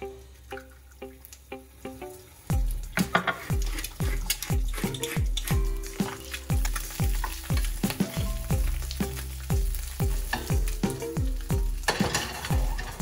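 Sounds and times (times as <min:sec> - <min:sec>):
eggs sizzling in oil: 0:00.0 - 0:13.0
music with deep steady beat: 0:02.5 - 0:11.8
wooden spatula scraping skillet: 0:03.0 - 0:07.9, 0:11.8 - 0:13.0.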